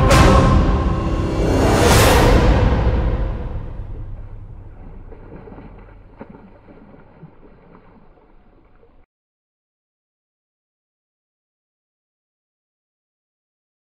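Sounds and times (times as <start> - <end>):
wind rumble on microphone: 3.9 - 9.0
fish splash in water: 4.7 - 9.0.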